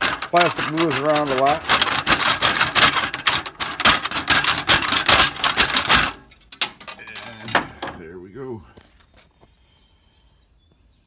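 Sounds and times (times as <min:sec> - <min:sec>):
saw cutting plastic: 0:00.0 - 0:06.2.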